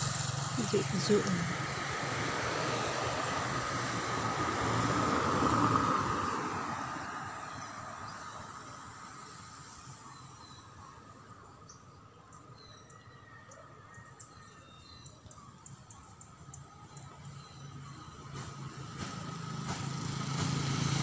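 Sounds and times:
minivan passing by: 0.0s - 11.8s, 15.2s - 21.0s.

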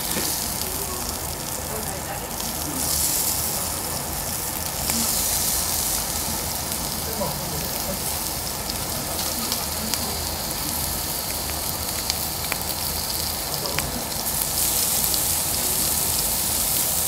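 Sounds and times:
meat sizzling on a grill: 0.0s - 17.0s
fat popping and crackling: 11.1s - 14.0s.

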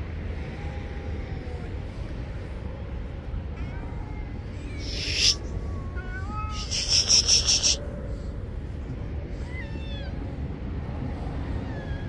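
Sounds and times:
cats meowing faintly: 3.2s - 8.3s, 9.2s - 10.5s, 11.2s - 12.0s
loud high rustling or hissing: 4.8s - 5.4s, 6.5s - 7.8s.

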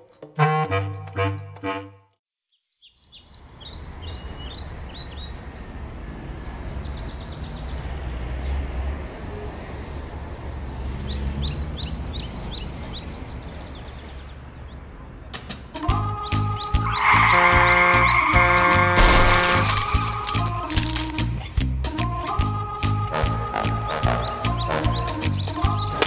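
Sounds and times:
small birds chirping: 2.5s - 8.6s, 10.8s - 21.6s, 24.1s - 26.0s
traffic rumble: 3.4s - 15.8s, 16.8s - 21.9s.

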